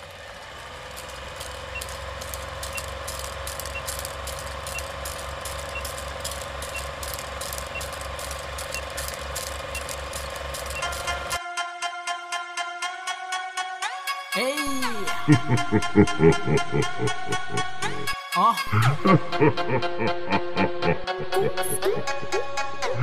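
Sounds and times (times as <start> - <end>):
rapid mechanical ticking: 0.0 - 11.4
steady hum: 0.1 - 11.4
melodic beat: 2.7 - 11.4.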